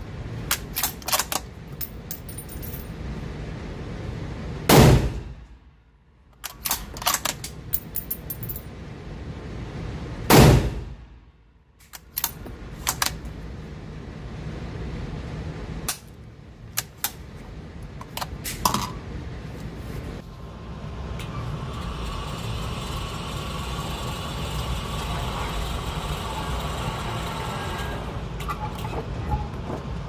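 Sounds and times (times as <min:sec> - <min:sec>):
motorized target carrier whirring: 0:21.2 - 0:28.1.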